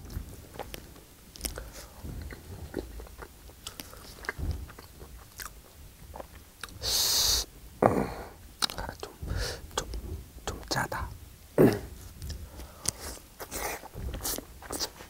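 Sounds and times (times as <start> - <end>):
chewing with wet mouth noises: 0.0 - 6.9, 12.2 - 15.0
short loud hiss: 6.8 - 7.5.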